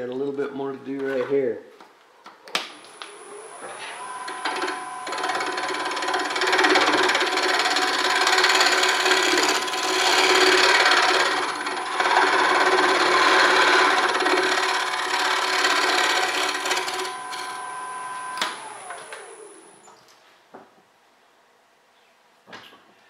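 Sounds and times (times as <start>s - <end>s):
lathe hum: 3.0s - 19.9s
gouge scraping wood on lathe: 4.0s - 17.7s.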